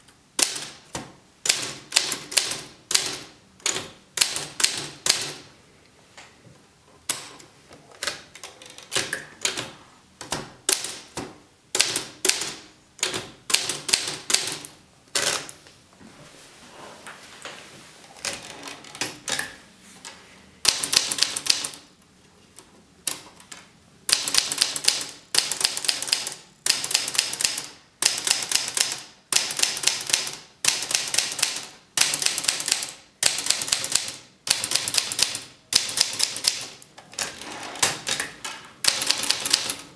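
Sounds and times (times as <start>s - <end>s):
typewriter keys clacking: 20.7s - 21.8s, 23.1s - 39.9s.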